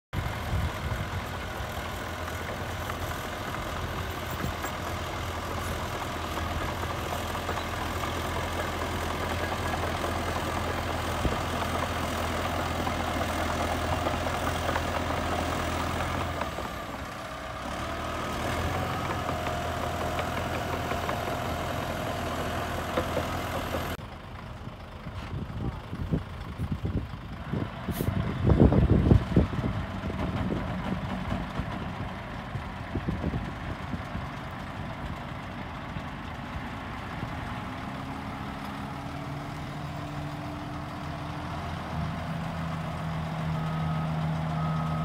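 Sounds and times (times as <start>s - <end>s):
bulldozer diesel engine running: 0.2s - 45.0s.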